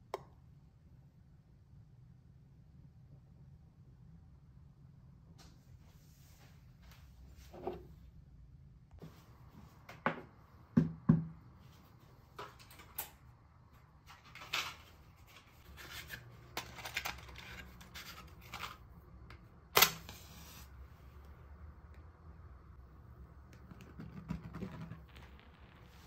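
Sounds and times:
matchbox being handled: 14.1 - 18.9.

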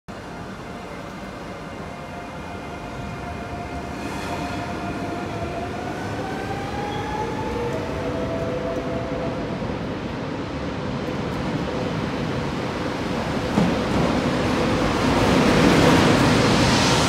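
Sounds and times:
approaching train whine: 0.1 - 10.3.

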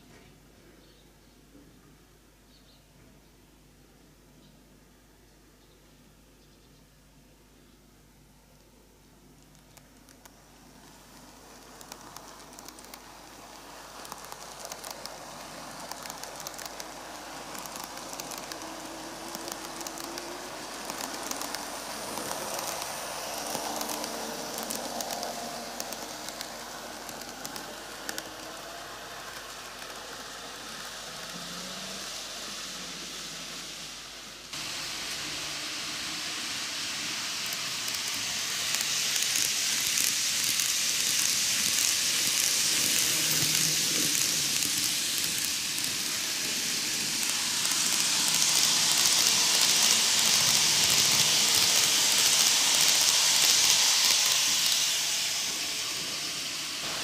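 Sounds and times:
model train rolling rattle: 9.6 - 57.0
wheels clicking over rail joints: 9.7 - 32.1, 37.3 - 56.2.

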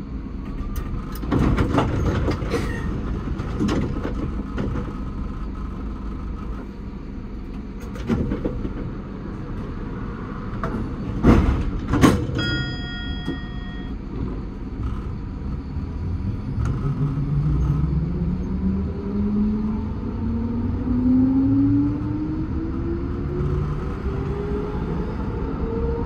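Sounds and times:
tram equipment humming: 0.0 - 26.0
multi-tone bell chime: 12.4 - 14.0.

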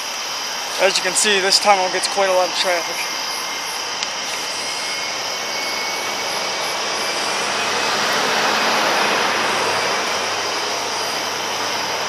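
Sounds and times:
car driving past: 4.4 - 12.0.

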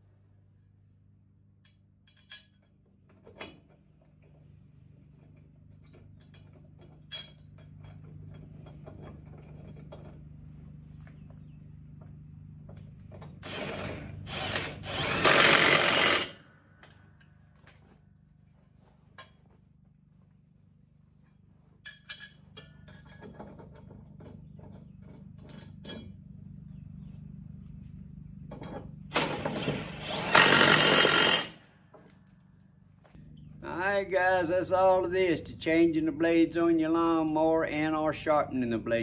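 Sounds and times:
low steady hum: 0.0 - 39.0
cordless impact wrench: 13.4 - 16.4, 29.1 - 31.7.

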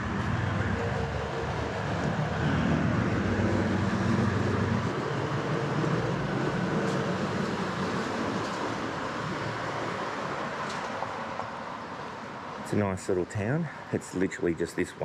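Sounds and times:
vehicle driving past: 0.0 - 10.6.

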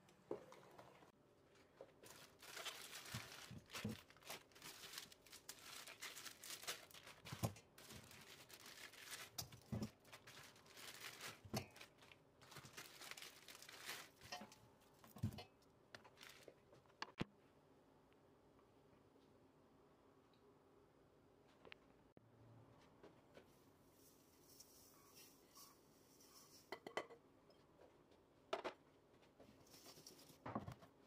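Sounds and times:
plastic bags crinkling and tearing: 2.0 - 14.4, 16.0 - 16.6.

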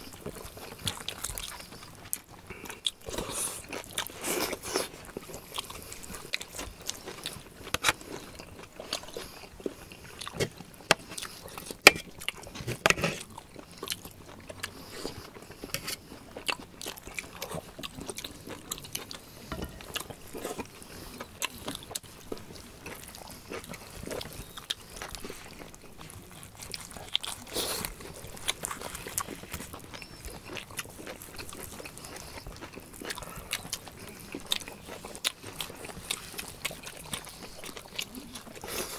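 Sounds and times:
chewing and biting: 0.0 - 38.9.

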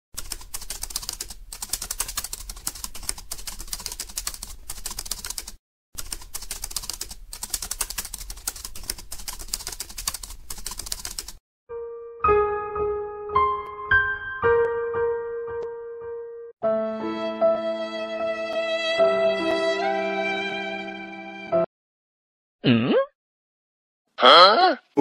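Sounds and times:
piano music: 11.7 - 21.7.

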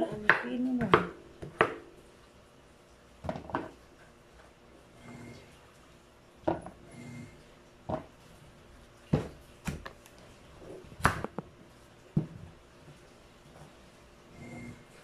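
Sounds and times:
knife chopping on wooden board: 0.1 - 1.8.

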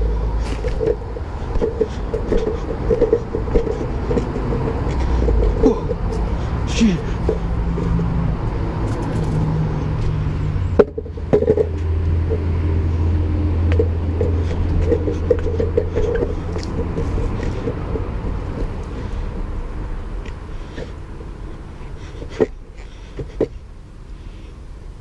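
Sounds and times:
skateboard wheels rolling on paving: 0.0 - 23.6.

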